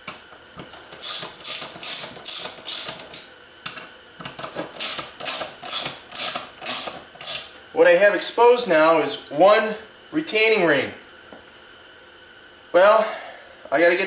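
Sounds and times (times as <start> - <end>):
ratchet wrench clicking: 1.0 - 3.3, 4.8 - 7.5.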